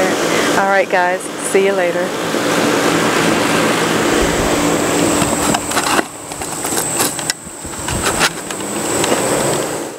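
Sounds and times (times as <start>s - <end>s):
mechanical hum with high whine: 0.0s - 9.9s
rustling near microphone: 3.9s - 8.5s.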